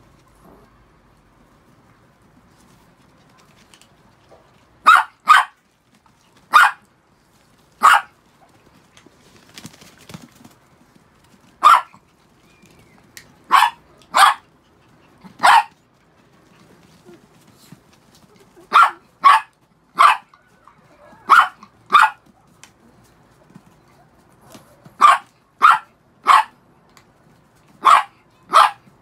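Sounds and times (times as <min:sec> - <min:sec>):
small dog yapping: 0:04.8 - 0:05.6, 0:06.5 - 0:06.8, 0:07.8 - 0:08.1, 0:11.6 - 0:12.0, 0:13.5 - 0:14.5, 0:15.2 - 0:15.8, 0:18.7 - 0:22.3, 0:25.0 - 0:26.6, 0:27.8 - 0:28.9.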